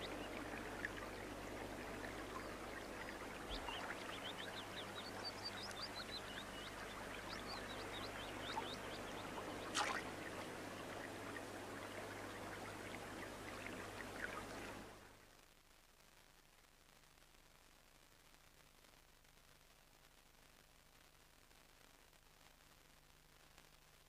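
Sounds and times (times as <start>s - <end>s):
flowing stream: 0.0s - 15.1s.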